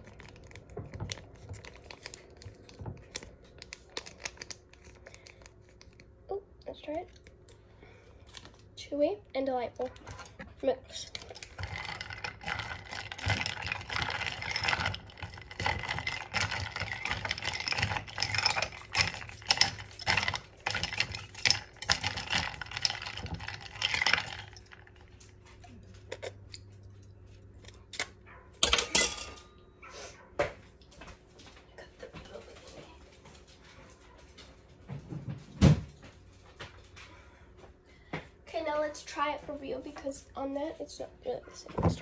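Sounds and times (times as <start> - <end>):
metal whisk clinking against ice: 10.1 - 24.8.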